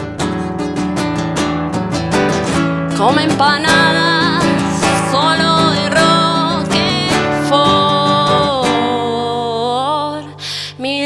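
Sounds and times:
strummed classical guitar: 0:00.0 - 0:10.4
woman singing with vibrato: 0:02.9 - 0:11.0.

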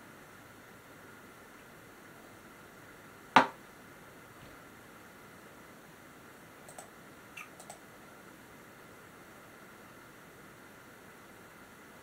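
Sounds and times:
faint computer mouse clicks: 0:06.7 - 0:07.8.

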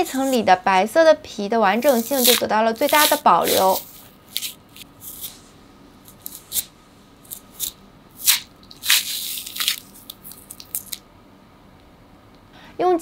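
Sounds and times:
fruit pith tearing: 0:01.8 - 0:05.3, 0:06.1 - 0:11.0.

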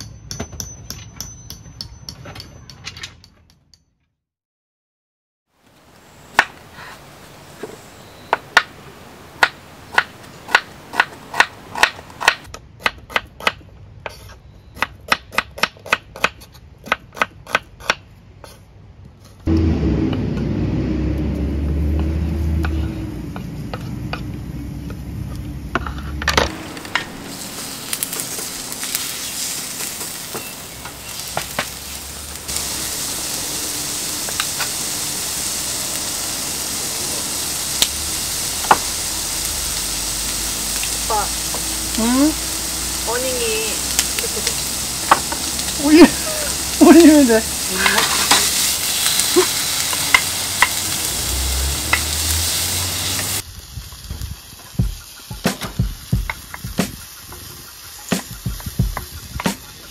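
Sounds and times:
food sizzling in a pan: 0:05.6 - 0:12.5, 0:25.9 - 0:59.9
low rumble: 0:19.5 - 0:30.0, 0:30.6 - 0:47.8.

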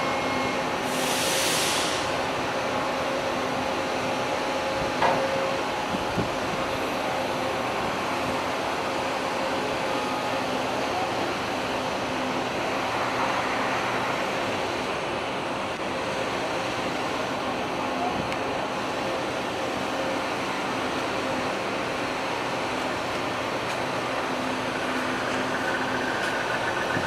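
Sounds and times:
wind noise on microphone: 0:05.8 - 0:06.9, 0:24.1 - 0:27.0
machinery drone: 0:21.8 - 0:27.0.

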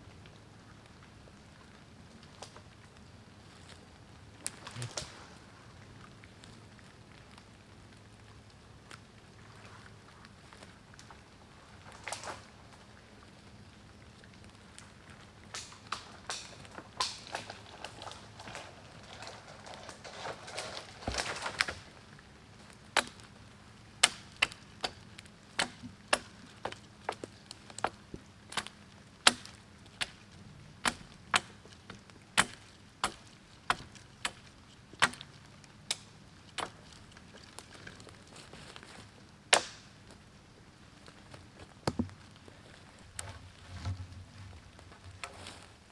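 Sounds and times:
twigs snapping and crackling: 0:02.2 - 0:07.7, 0:10.2 - 0:13.1, 0:14.3 - 0:45.9
blade chopping wooden pole: 0:23.0 - 0:23.2, 0:25.6 - 0:27.2, 0:28.6 - 0:30.1, 0:30.8 - 0:31.6, 0:32.4 - 0:34.4, 0:35.0 - 0:35.2, 0:39.5 - 0:39.8.

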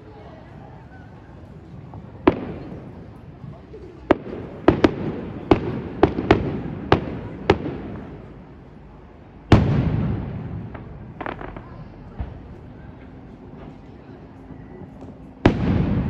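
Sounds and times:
fireworks bangs: 0:01.7 - 0:08.5, 0:09.5 - 0:13.8, 0:15.0 - 0:16.0
loud firework boom rumbling: 0:09.5 - 0:12.8, 0:15.4 - 0:16.0
firework crackles: 0:09.5 - 0:13.0.

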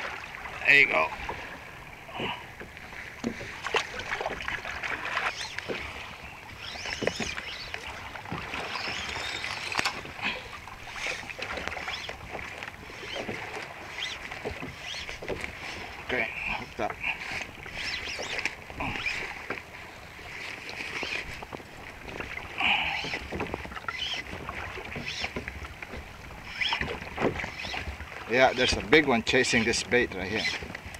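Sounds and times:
water lapping against kayak hull: 0:00.0 - 0:30.9
fishing gear knocks and clicks: 0:03.2 - 0:05.8, 0:06.7 - 0:10.2.

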